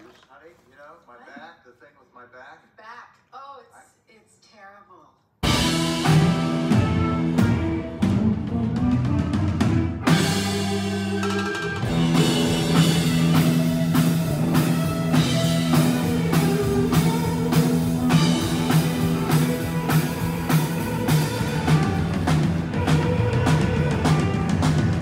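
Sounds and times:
drum kit beat: 0:05.4 - 0:25.0
live rock band playing: 0:05.4 - 0:25.0.

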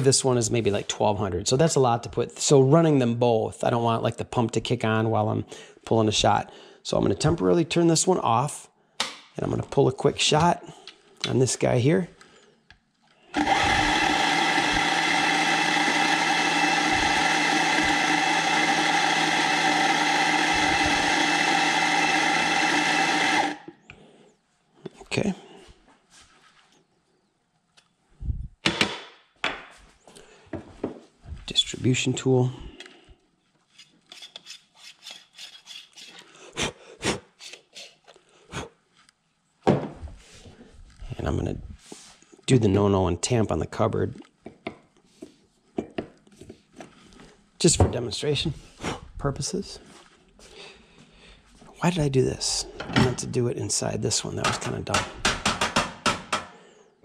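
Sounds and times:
coffee grinder grinding: 0:13.2 - 0:23.8
coffee tool scraping and clicking: 0:33.7 - 0:36.3
sharp knocks: 0:54.5 - 0:56.5.

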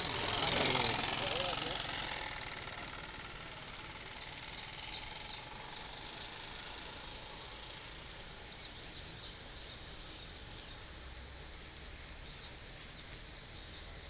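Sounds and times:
bird chirps: 0:04.1 - 0:06.6, 0:08.5 - 0:10.8.

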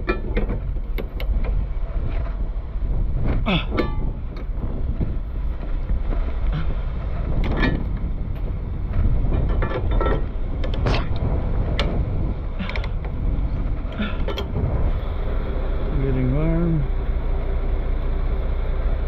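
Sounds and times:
steady low rumble: 0:00.0 - 0:19.0
metallic clicks and clanks: 0:07.4 - 0:12.0, 0:12.6 - 0:13.2, 0:13.9 - 0:14.6.

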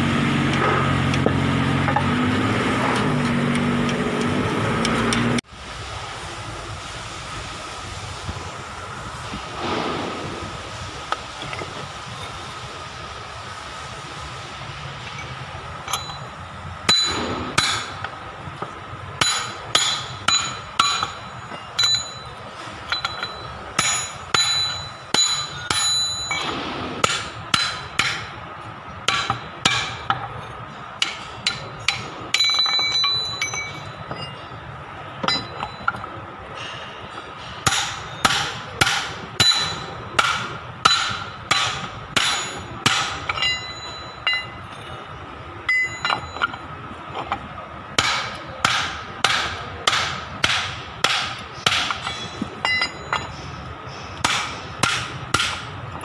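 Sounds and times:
ringing metal gear: 0:15.1 - 0:18.0, 0:19.2 - 0:26.6, 0:31.0 - 0:37.2, 0:39.4 - 0:40.1, 0:42.2 - 0:44.9, 0:45.6 - 0:47.5, 0:51.8 - 0:53.6
hammer striking metal: 0:15.9 - 0:18.2, 0:19.2 - 0:28.4, 0:29.0 - 0:30.3, 0:31.0 - 0:34.6, 0:35.2 - 0:44.8, 0:45.6 - 0:46.6, 0:48.0 - 0:55.8.

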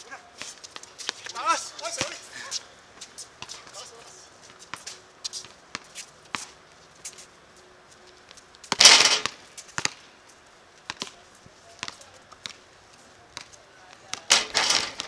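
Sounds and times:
basketball knocks and thuds: 0:14.1 - 0:15.0.

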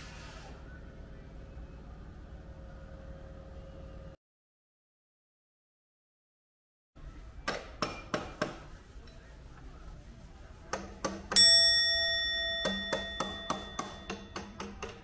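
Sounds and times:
bright bell chime: 0:11.4 - 0:14.1.

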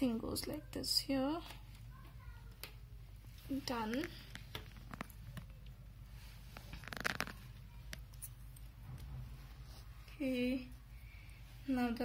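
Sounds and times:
cables rustling: 0:01.5 - 0:10.9.

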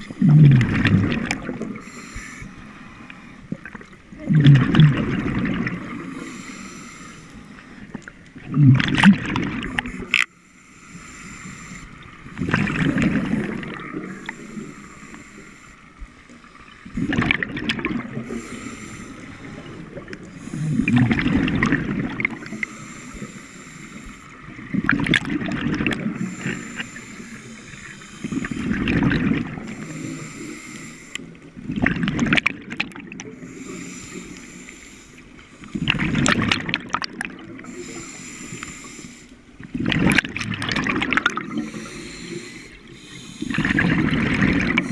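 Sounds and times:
exhaled bubbles gurgling: 0:00.0 - 0:10.3, 0:11.5 - 0:34.4, 0:35.6 - 0:38.8, 0:39.4 - 0:44.9
regulator inhale hiss: 0:01.7 - 0:03.4, 0:05.8 - 0:07.9, 0:09.8 - 0:12.2, 0:13.3 - 0:16.8, 0:18.2 - 0:21.0, 0:22.4 - 0:24.6, 0:26.1 - 0:28.8, 0:29.6 - 0:31.5, 0:33.3 - 0:35.8, 0:37.6 - 0:39.5, 0:41.5 - 0:44.0.

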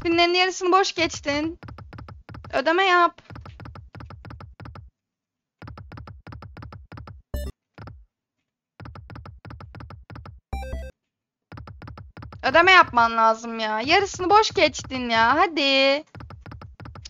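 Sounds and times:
rapid electronic ticking: 0:01.2 - 0:02.5, 0:05.6 - 0:08.0, 0:08.8 - 0:10.9, 0:16.0 - 0:17.0.

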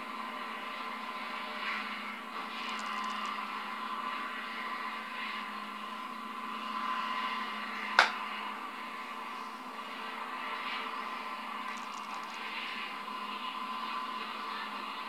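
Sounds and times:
small electric motor whirring: 0:02.6 - 0:03.5, 0:11.7 - 0:12.7.

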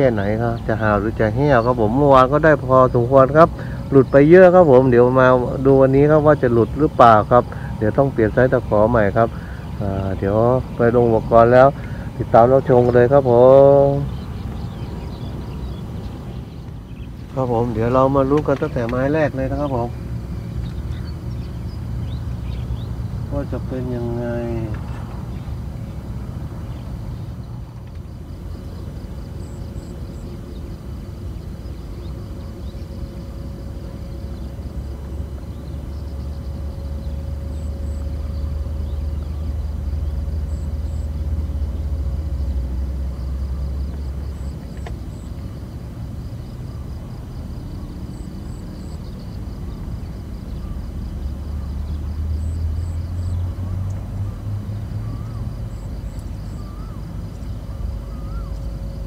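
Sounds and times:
faint steady hum: 0:00.0 - 0:59.0
faint high chirps: 0:47.0 - 0:59.0.

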